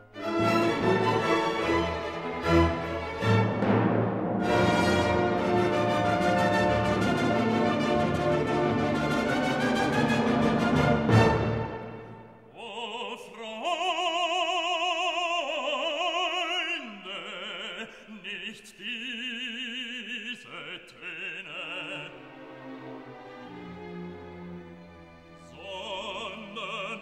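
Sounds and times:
operatic voice singing: 12.5 - 22.4, 25.4 - 27.0.

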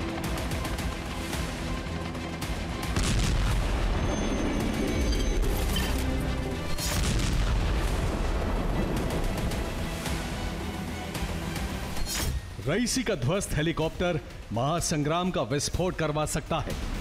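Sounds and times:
dramatic background music: 0.0 - 17.0
deep booming cinematic hits: 2.8 - 4.5, 7.0 - 9.7.

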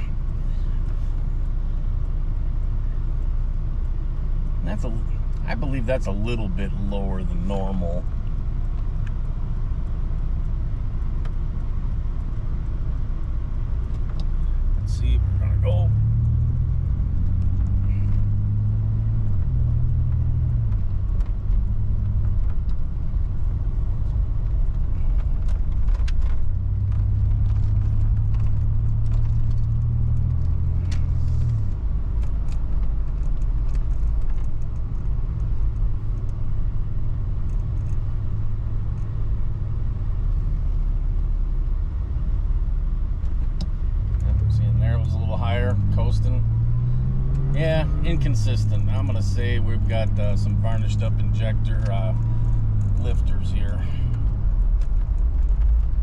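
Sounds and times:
car engine while driving: 0.0 - 56.0
road noise inside car: 0.0 - 56.0.

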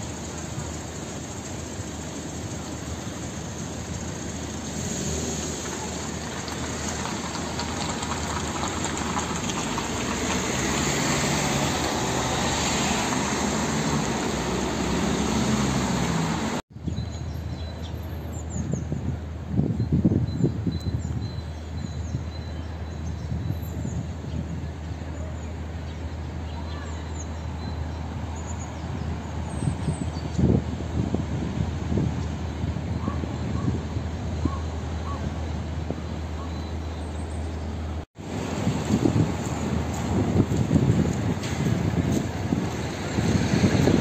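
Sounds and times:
cars passing on street: 0.0 - 44.0.

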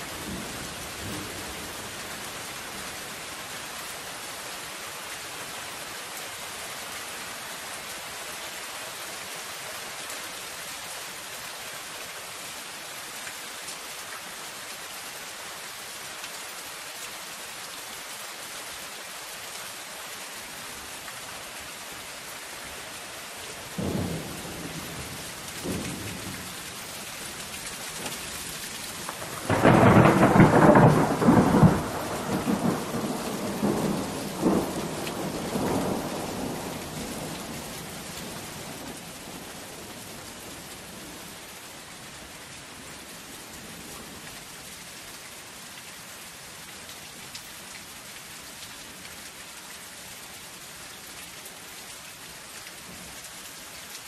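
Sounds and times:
rain on a metal roof: 0.0 - 54.0
low thunder rumbles: 23.8 - 26.6, 29.0 - 39.5
loud rolling thunderclap: 29.1 - 37.3.

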